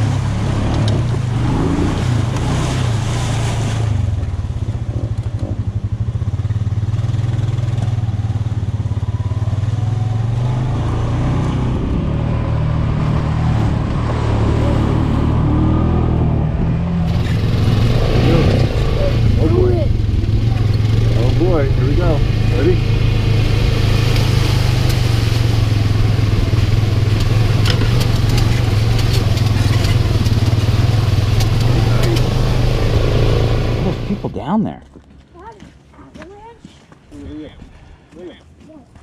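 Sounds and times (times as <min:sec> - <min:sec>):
splashing through mud puddle: 0:00.0 - 0:08.9, 0:17.0 - 0:34.2
utility vehicle engine running: 0:16.7 - 0:34.3.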